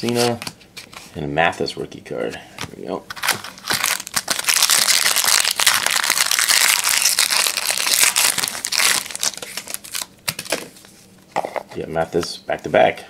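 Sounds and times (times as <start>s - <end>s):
plastic wrapper crinkling: 3.1s - 10.7s.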